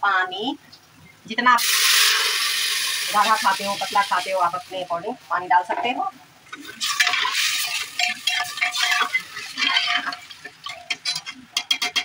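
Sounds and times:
liquid sloshing in pot: 6.4s - 12.0s
metal spoon scraping pot: 6.6s - 12.0s.

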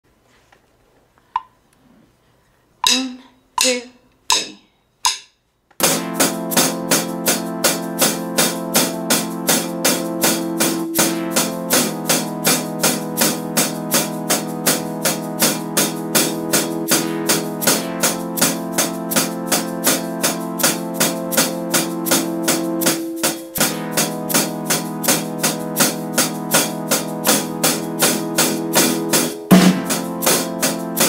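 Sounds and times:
count-in clicks: 2.8s - 7.9s
snare drum strokes: 5.8s - 31.0s
strummed guitar backing track: 28.8s - 30.4s.

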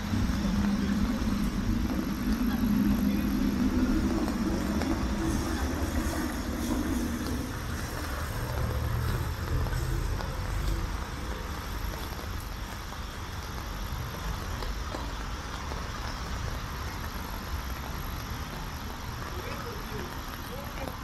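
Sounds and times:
boat engine rumbling: 0.0s - 14.6s.

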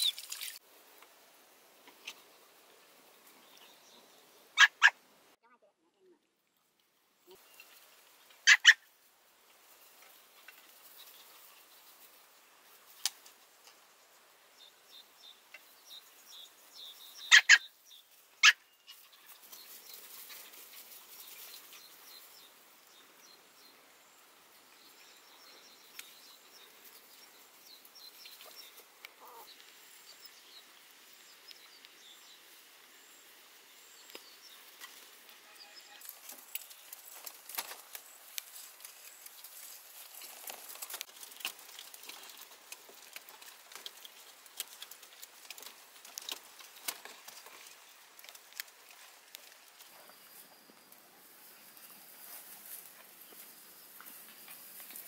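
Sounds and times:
puppy yelps: 4.6s - 5.0s, 8.4s - 8.8s, 17.3s - 17.6s
paws clicking on bamboo floor: 36.0s - 50.3s.

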